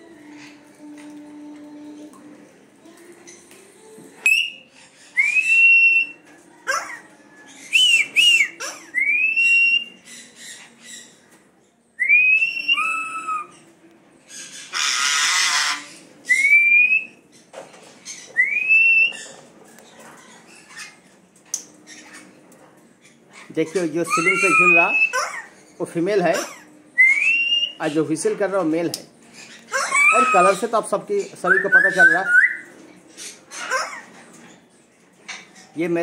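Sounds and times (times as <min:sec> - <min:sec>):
parrot whistling: 0:04.2 - 0:04.6, 0:12.0 - 0:13.5, 0:24.1 - 0:25.3, 0:27.0 - 0:27.8, 0:29.7 - 0:30.6, 0:31.5 - 0:32.6.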